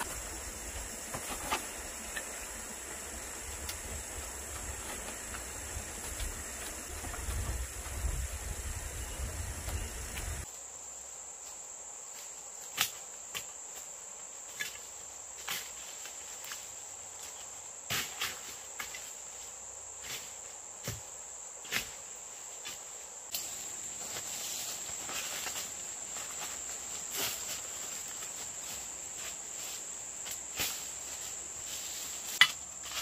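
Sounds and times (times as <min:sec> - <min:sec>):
high-pitched insect drone: 0:00.0 - 0:10.5
leaf rustling: 0:21.9 - 0:33.0.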